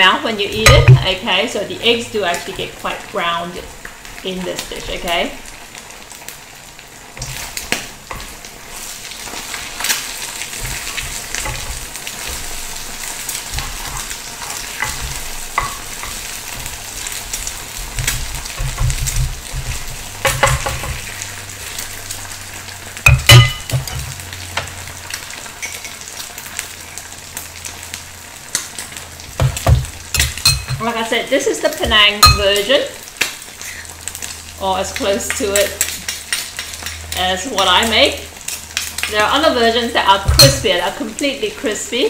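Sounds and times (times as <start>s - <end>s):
eggs sizzling in oil: 0.0s - 42.0s
spatula scraping pan: 7.2s - 21.4s.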